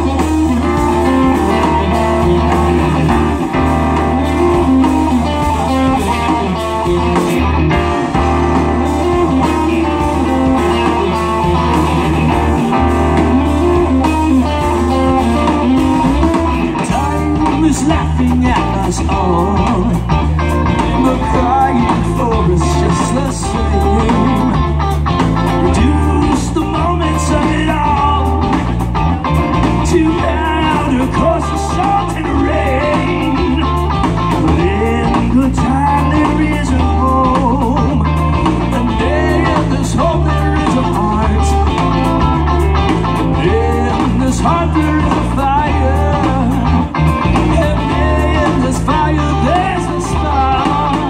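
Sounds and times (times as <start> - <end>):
live rock blues band: 0.0 - 51.0
lead vocal singing: 14.7 - 24.8, 25.5 - 28.8, 29.8 - 42.3, 43.0 - 51.0.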